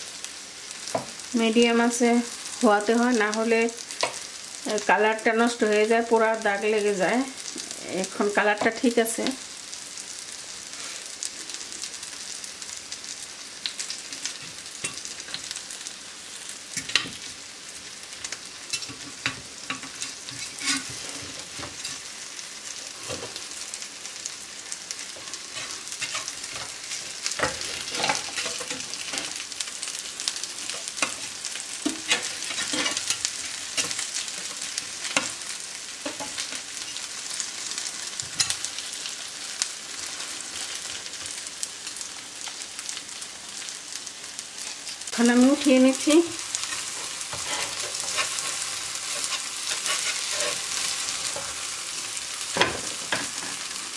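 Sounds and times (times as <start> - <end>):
crackles and pops of frying: 0.0 - 53.9
sandwiches sizzling in grill pan: 0.0 - 53.9.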